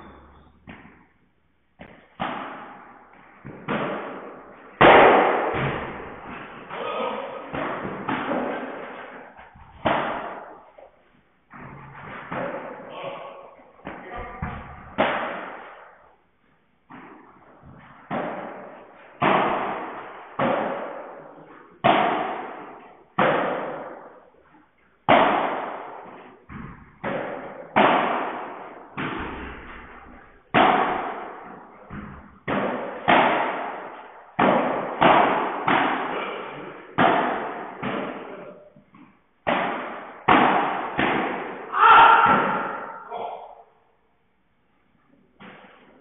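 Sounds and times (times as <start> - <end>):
ball bouncing off court walls: 0.0 - 43.0, 45.3 - 46.0
padel ball struck by rackets: 1.8 - 6.8, 9.6 - 10.6, 25.1 - 29.8, 30.5 - 36.2, 37.0 - 38.4, 39.0 - 42.9.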